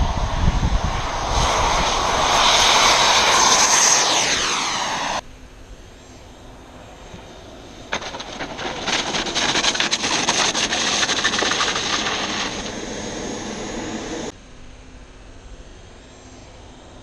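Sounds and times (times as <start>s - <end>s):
model jet rushing with crackle: 0.6s - 5.2s, 6.8s - 14.3s.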